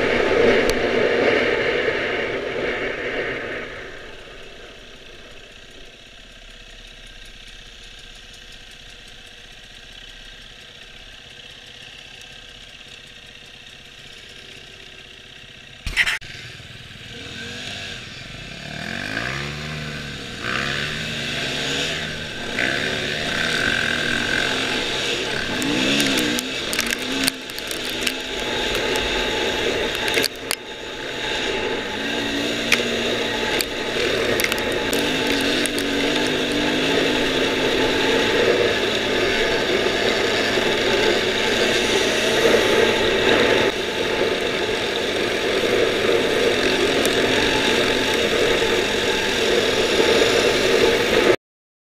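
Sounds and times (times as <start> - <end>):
dirt bike engine revving: 0.0 - 51.4
sharp clicks: 24.3 - 29.2, 29.8 - 30.6, 32.7 - 36.4.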